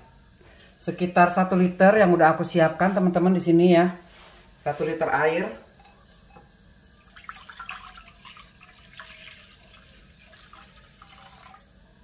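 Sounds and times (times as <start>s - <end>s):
water pouring into frying pan: 6.9s - 12.0s.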